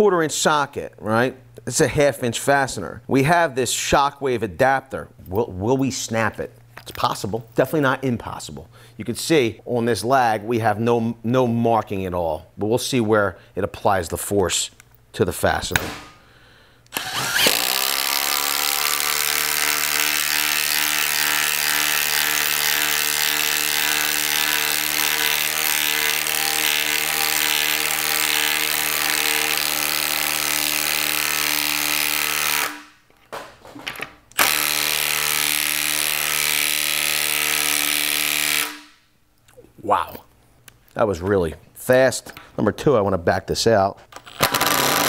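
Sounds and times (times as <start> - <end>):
impact driver hammering screw into wood: 15.7 - 16.2, 16.9 - 32.9, 44.1 - 45.0.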